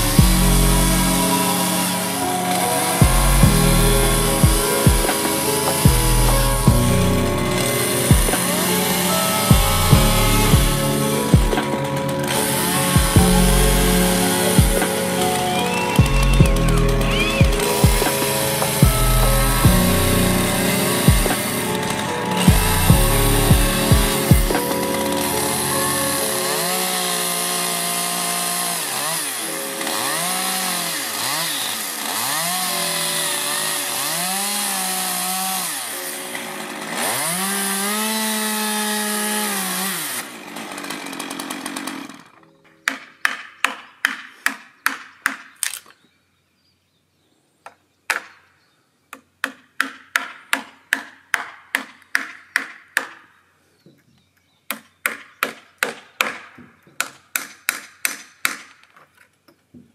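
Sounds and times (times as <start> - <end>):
chainsaw cutting wood: 0.0 - 46.0, 54.7 - 59.2
hammer striking chisel: 42.7 - 45.6, 49.1 - 53.3, 54.7 - 58.9.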